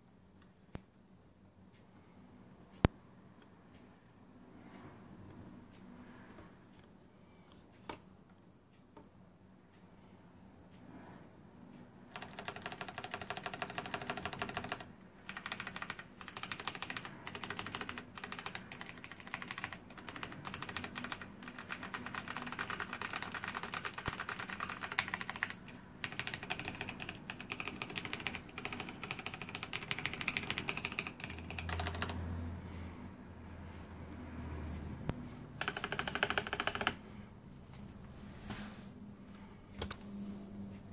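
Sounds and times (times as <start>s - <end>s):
fast typing on mechanical keyboard: 12.1s - 32.3s, 35.6s - 37.0s.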